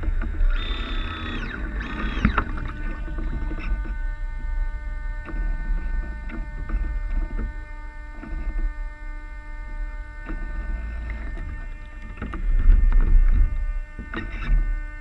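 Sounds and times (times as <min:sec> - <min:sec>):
electrical hum: 0:00.0 - 0:15.0
water slapping against hulls: 0:01.6 - 0:04.0.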